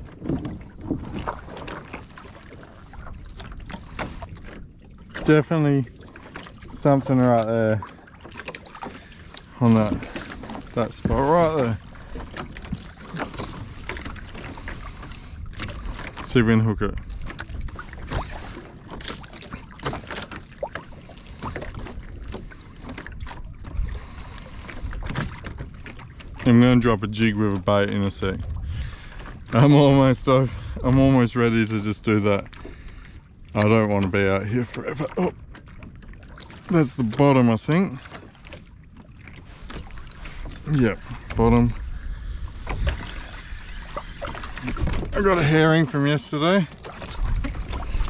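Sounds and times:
wind rumble on microphone: 0.0 - 2.0, 23.1 - 32.4, 39.0 - 45.8, 47.0 - 48.0
water lapping against kayak hull: 0.0 - 48.0.

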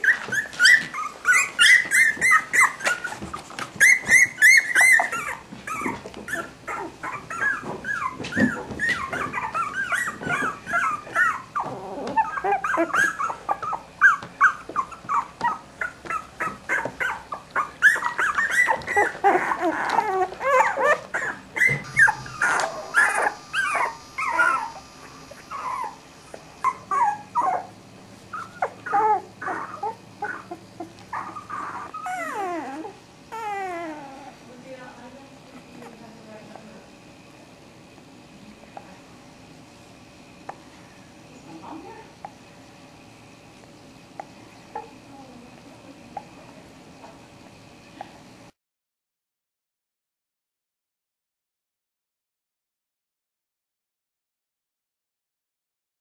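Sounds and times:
puppies whimpering: 0.0 - 36.7, 44.2 - 45.4.

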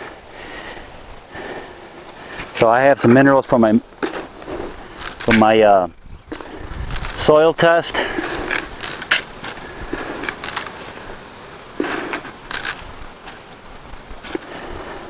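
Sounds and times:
object being handled rustling: 4.0 - 14.6.

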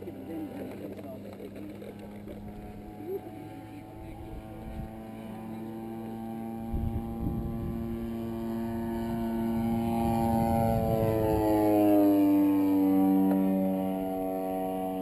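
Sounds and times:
model airplane engine droning: 0.0 - 15.0
wind buffeting microphone: 3.9 - 5.2, 6.4 - 12.0.

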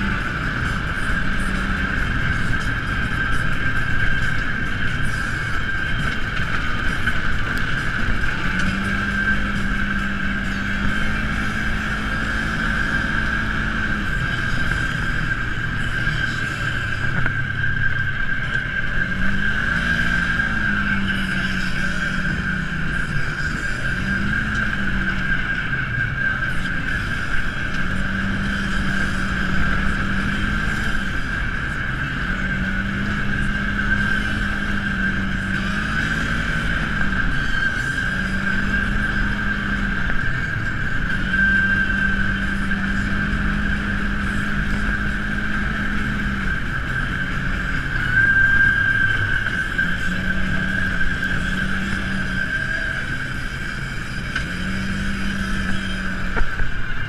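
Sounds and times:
utility vehicle engine running: 0.0 - 57.0.

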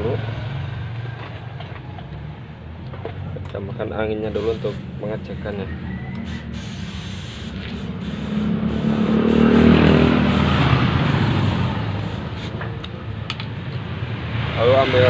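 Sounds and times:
compressed air hissing into tyre: 4.3 - 5.0, 6.0 - 12.9.

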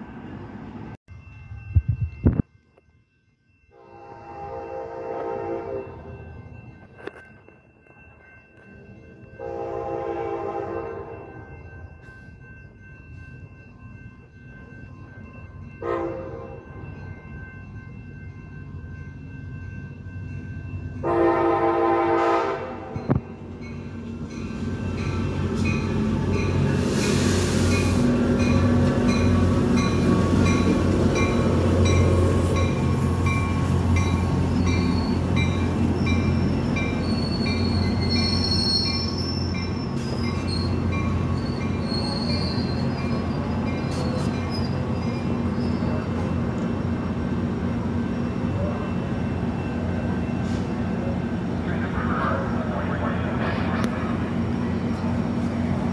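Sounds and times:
train horn blast: 3.7 - 6.0, 9.4 - 11.2, 15.8 - 16.6, 21.0 - 23.0
train cars rumbling: 4.2 - 55.9
high brake squeals: 36.0 - 46.3.

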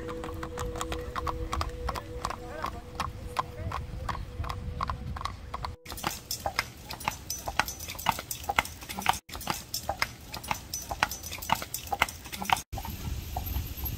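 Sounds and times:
low rumble: 0.0 - 5.8
horse hooves clip-clopping on pavement: 0.0 - 13.9.

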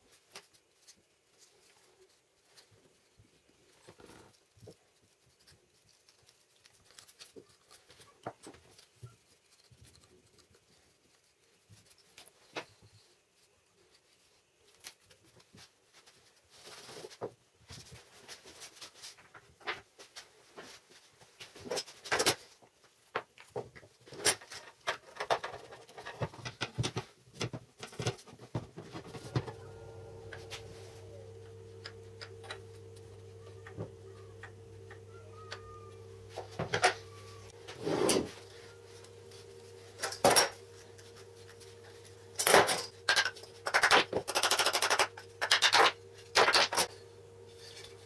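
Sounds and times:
steady low hum: 29.2 - 48.0
clamps and wood clicking and knocking: 42.4 - 46.9.

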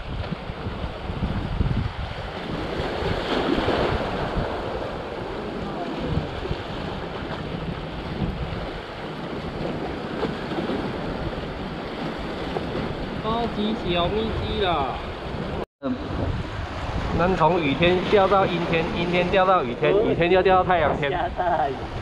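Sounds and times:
wind rumbling on microphone: 0.0 - 22.0
sea waves washing against blocks: 2.2 - 14.8.

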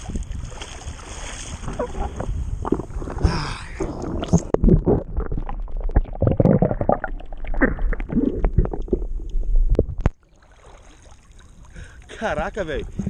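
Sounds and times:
water gurgling and sloshing: 0.0 - 13.0
low rumbles: 1.7 - 10.2.

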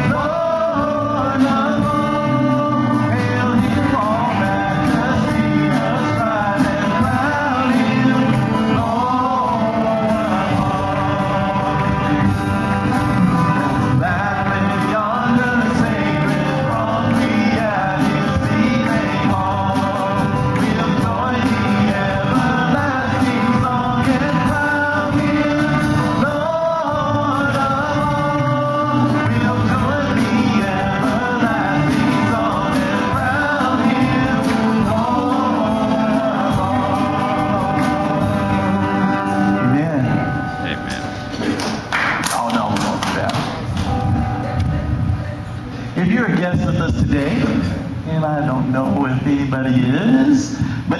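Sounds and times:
man and women singing: 0.0 - 40.1
acoustic guitar: 0.0 - 50.9.

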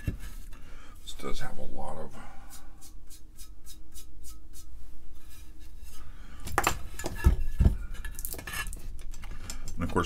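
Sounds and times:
heavy thumps: 6.4 - 8.0.

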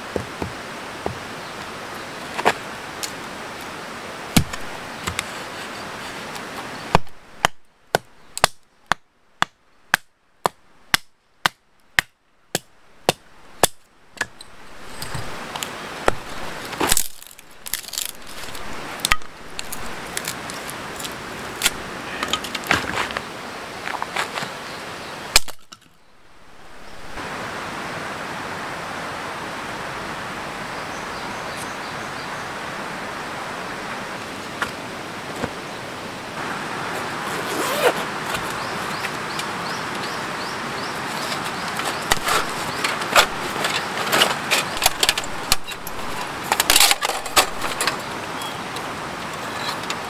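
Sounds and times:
hatchet splitting firewood: 4.3 - 5.3, 6.9 - 23.1, 25.3 - 25.9, 41.3 - 48.0
split wood clatter: 15.0 - 23.2, 41.2 - 48.1.

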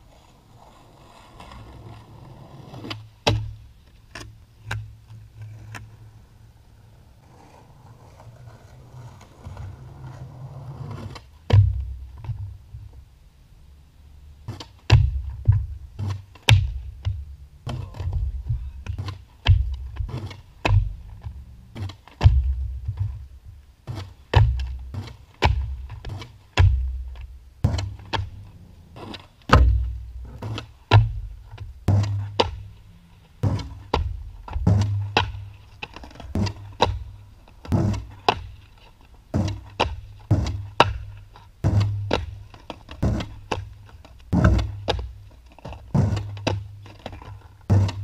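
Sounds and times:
skateboard clacking on concrete: 0.1 - 3.0, 7.2 - 11.3.

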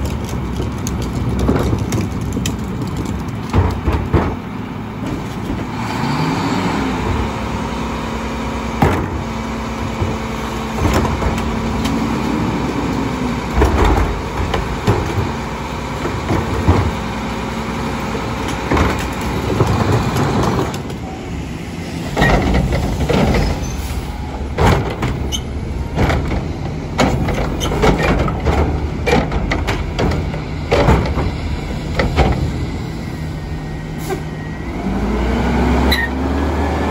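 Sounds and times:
garbage truck arm clanks: 22.1 - 23.8, 24.4 - 32.6.

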